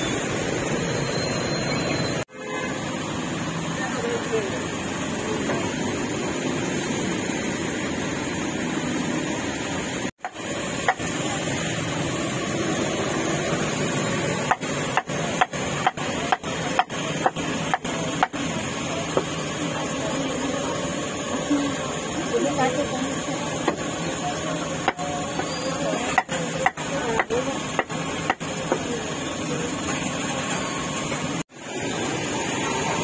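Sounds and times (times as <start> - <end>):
heavy rain hissing: 2.6 - 33.0
cleaver chopping meat on a block: 14.4 - 18.4, 24.8 - 25.5, 26.1 - 28.9.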